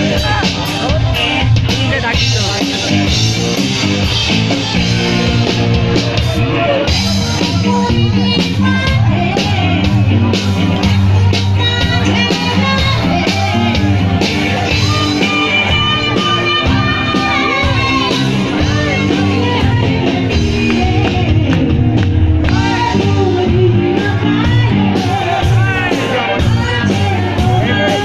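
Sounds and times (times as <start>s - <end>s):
live rock band playing: 0.0s - 28.0s
person singing: 6.2s - 28.0s.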